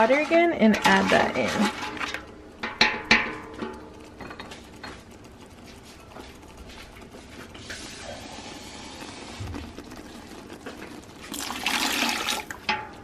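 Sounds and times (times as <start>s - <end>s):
metal clanks on stockpot: 0.0s - 5.0s, 12.5s - 13.0s
water pouring into pot: 7.6s - 12.8s.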